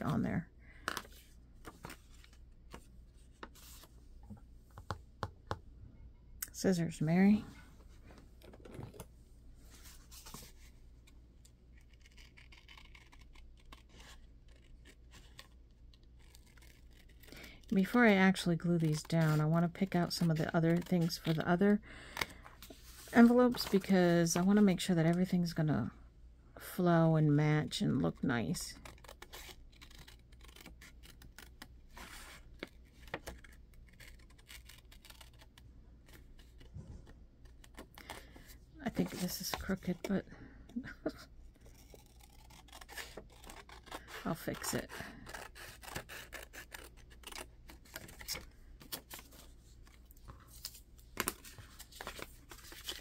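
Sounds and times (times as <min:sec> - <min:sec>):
scissors snipping paper: 0:16.2 - 0:21.6, 0:28.7 - 0:31.7, 0:33.2 - 0:36.6, 0:40.8 - 0:48.4
paper rustling: 0:28.8 - 0:40.1, 0:40.8 - 0:53.0.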